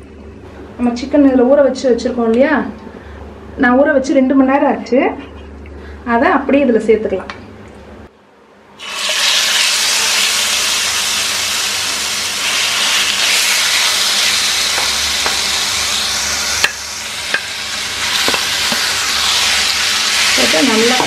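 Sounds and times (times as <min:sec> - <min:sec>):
chicken sizzling in hot oil: 0:08.8 - 0:21.0.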